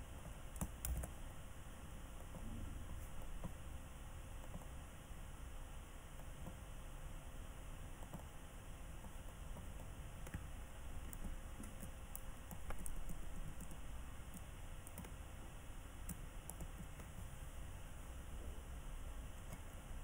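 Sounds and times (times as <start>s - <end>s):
low steady hum: 0.0s - 20.0s
faint irregular clicks: 0.2s - 1.2s, 4.4s - 4.8s, 7.9s - 15.2s, 16.0s - 17.3s, 19.3s - 19.8s.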